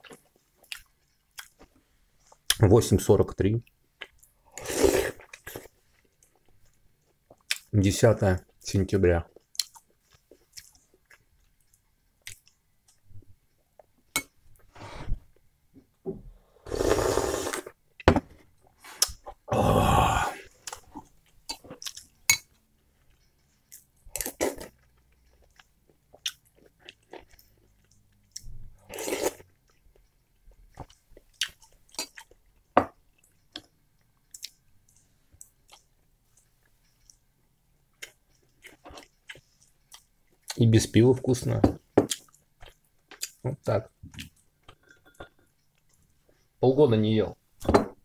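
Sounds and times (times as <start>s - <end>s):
person chewing: 0.0s - 2.6s, 4.0s - 7.7s, 9.3s - 13.0s, 18.9s - 37.2s, 37.9s - 40.6s, 42.1s - 43.4s.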